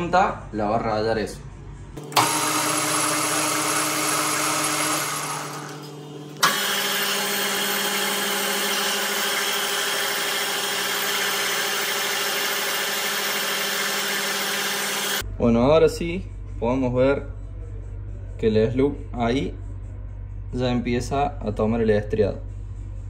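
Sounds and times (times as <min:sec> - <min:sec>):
lathe click: 0:02.0 - 0:15.2
metal lathe motor hum: 0:02.0 - 0:15.2.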